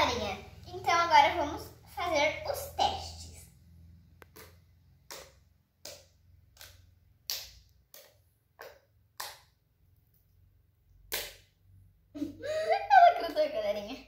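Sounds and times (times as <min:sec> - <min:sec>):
slime clicking: 0:04.2 - 0:09.6.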